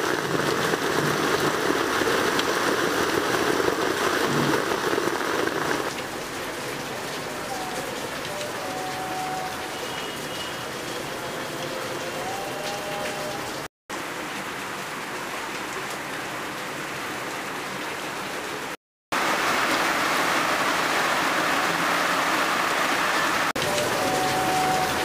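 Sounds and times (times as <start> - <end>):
rain falling: 0.0 - 25.0.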